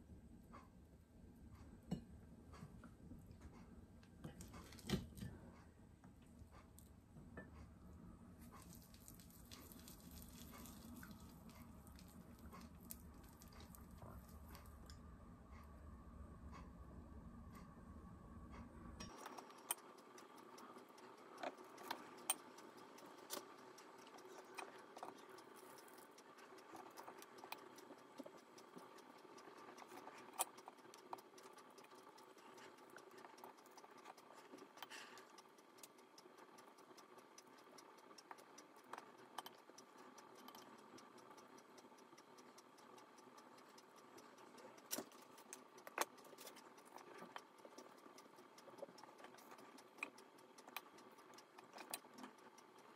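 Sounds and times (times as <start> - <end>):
faint steady hum: 0.0 - 52.9
small clicks and taps: 19.0 - 52.9.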